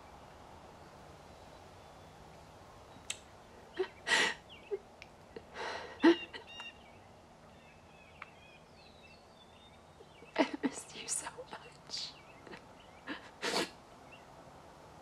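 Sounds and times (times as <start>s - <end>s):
faint bird chirps: 0.0s - 13.3s
woman sobbing: 3.8s - 4.8s, 5.4s - 6.6s, 10.2s - 13.8s.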